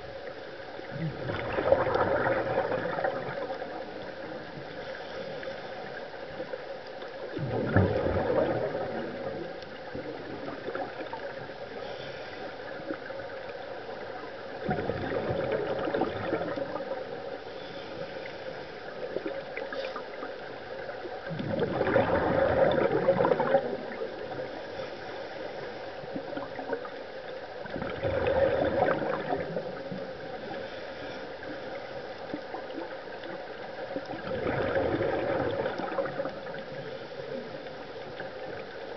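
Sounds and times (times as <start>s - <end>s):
underwater gurgling bubbles: 0.0s - 38.9s
steady low hiss: 2.5s - 7.6s, 8.4s - 21.4s, 22.7s - 27.7s, 28.8s - 34.2s.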